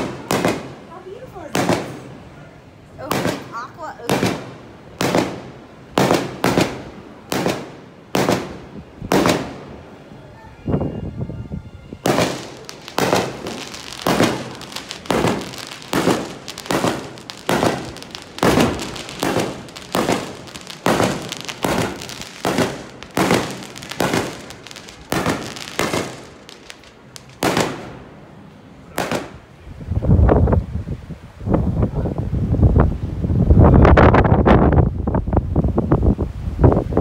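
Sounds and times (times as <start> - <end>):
fireworks bangs: 0.0 - 2.4, 3.0 - 10.0, 12.0 - 28.3, 28.9 - 29.5
wind buffeting microphone: 5.8 - 27.6, 28.9 - 37.0.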